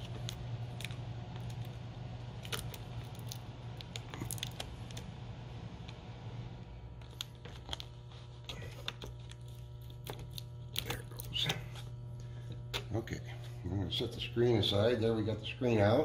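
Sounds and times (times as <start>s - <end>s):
tape peeling clicks and crinkles: 0.0s - 5.1s, 7.0s - 11.6s
steady low hum: 0.0s - 16.0s.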